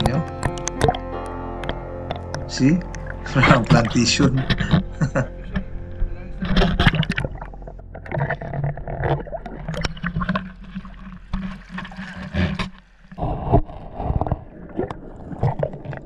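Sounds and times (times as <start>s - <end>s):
sea water sloshing and gurgling: 5.8s - 16.0s
knocks and splashes: 6.4s - 16.0s.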